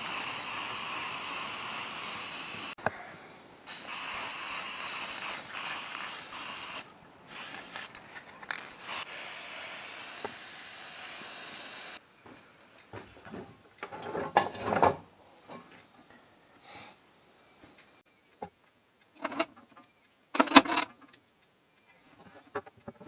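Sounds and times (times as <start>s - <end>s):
spray paint can hissing: 0.0s - 2.8s, 3.7s - 8.0s, 8.6s - 12.0s.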